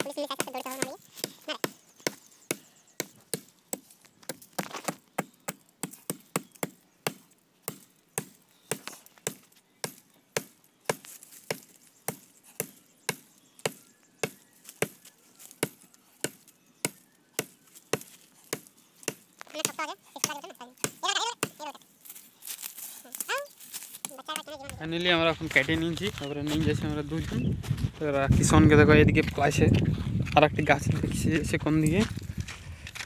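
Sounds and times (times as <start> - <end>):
axe chopping wood: 0.4 - 21.7.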